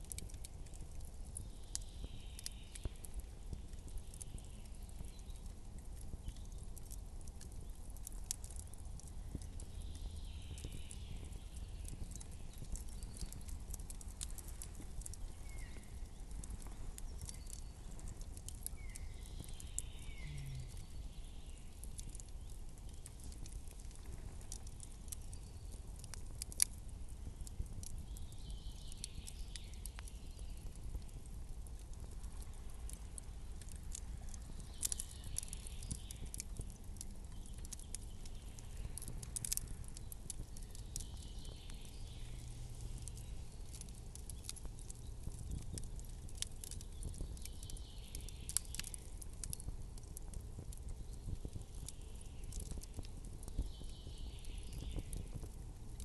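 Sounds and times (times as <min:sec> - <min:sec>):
soft hiss: 0:00.0 - 0:50.8
campfire crackling and popping: 0:00.0 - 0:56.0
low steady rumble: 0:29.8 - 0:47.3.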